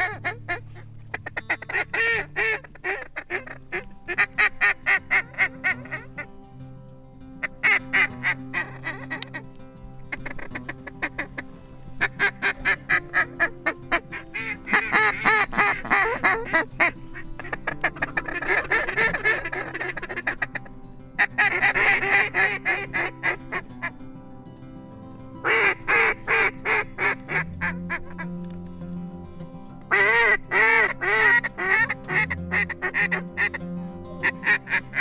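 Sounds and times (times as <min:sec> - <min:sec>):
duck call quacks: 0:00.0 - 0:06.1, 0:12.0 - 0:23.9, 0:25.4 - 0:28.3, 0:29.9 - 0:33.6, 0:34.2 - 0:35.0.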